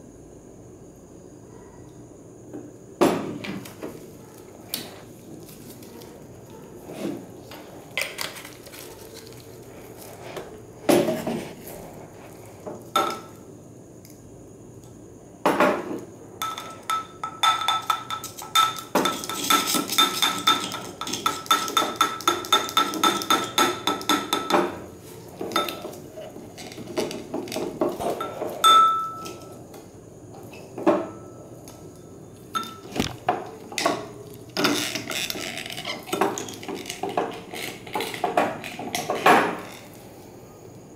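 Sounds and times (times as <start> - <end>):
glass ringing: 28.6 - 29.6.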